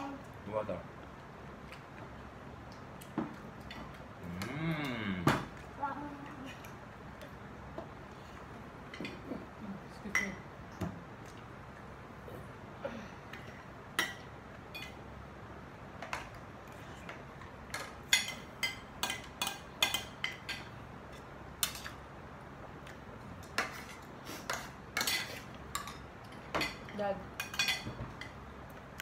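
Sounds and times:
cutlery clinking on plates: 0:23.4 - 0:28.4.

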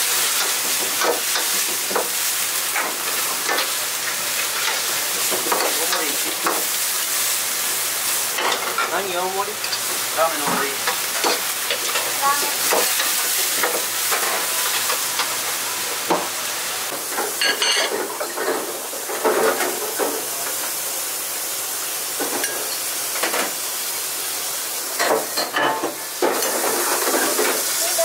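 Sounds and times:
steady sizzling hiss: 0:00.0 - 0:28.0
utensils and dishes clattering: 0:02.7 - 0:06.7, 0:08.4 - 0:15.4, 0:16.9 - 0:20.5, 0:25.0 - 0:28.0.

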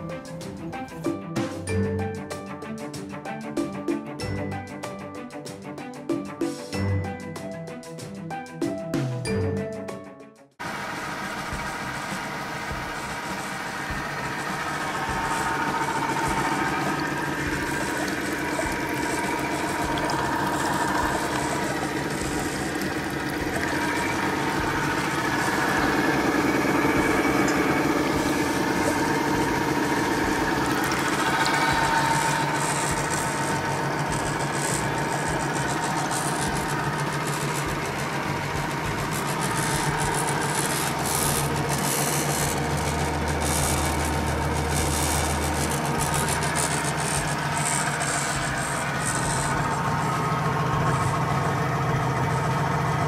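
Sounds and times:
electric motor hum and whir: 0:10.6 - 0:53.0.

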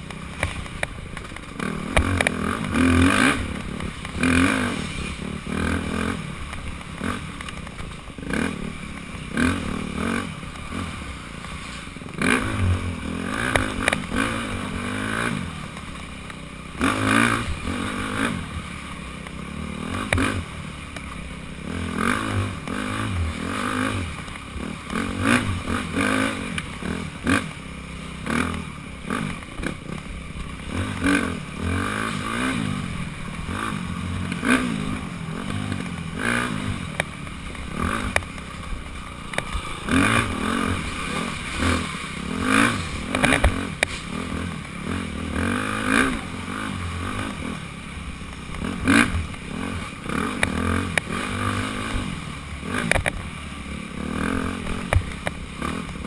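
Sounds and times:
dirt bike engine revving: 0:00.0 - 0:56.0
bike clattering over rough ground: 0:35.5 - 0:46.4.

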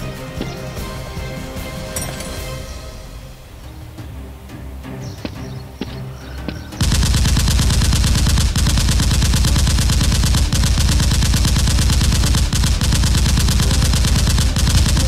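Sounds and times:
machine-gun fire: 0:06.8 - 0:15.0.

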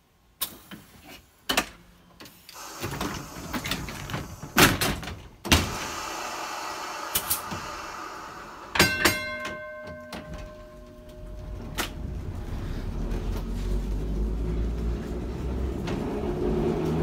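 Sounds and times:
compressed air hissing: 0:02.5 - 0:09.1
sharp metal clunks: 0:08.8 - 0:11.2.

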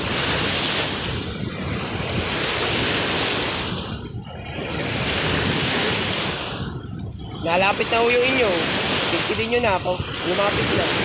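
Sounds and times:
lake waves washing ashore: 0:00.0 - 0:11.0
wind buffeting microphone: 0:00.0 - 0:11.0.

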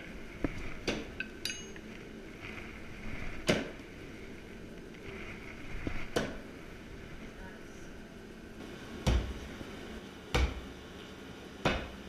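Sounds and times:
metal heads clinking: 0:01.2 - 0:02.0.

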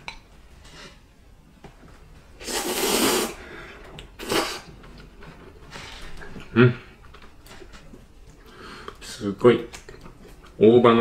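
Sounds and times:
person slurping noodles: 0:02.4 - 0:03.5, 0:04.2 - 0:04.7.

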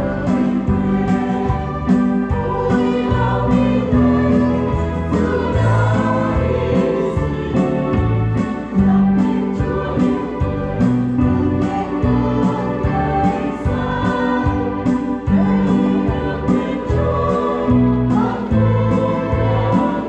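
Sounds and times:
choir singing a hymn: 0:00.0 - 0:20.0
instrumental accompaniment with beat: 0:00.0 - 0:20.0.

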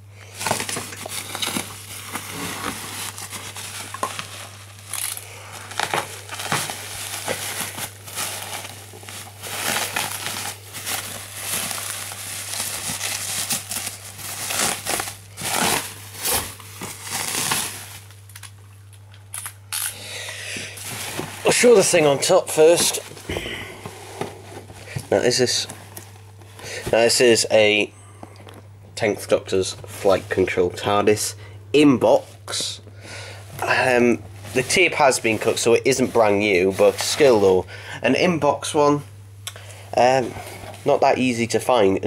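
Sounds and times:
packaging crinkling and rustling: 0:00.2 - 0:27.8, 0:33.4 - 0:37.6.

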